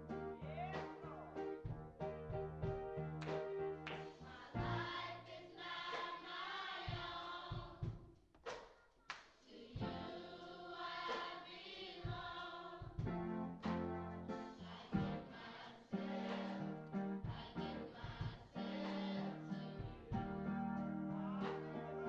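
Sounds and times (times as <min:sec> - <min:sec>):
instrumental accompaniment: 0:00.0 - 0:04.9, 0:13.0 - 0:15.3, 0:16.0 - 0:22.0
church choir singing: 0:03.9 - 0:07.8, 0:09.5 - 0:22.0.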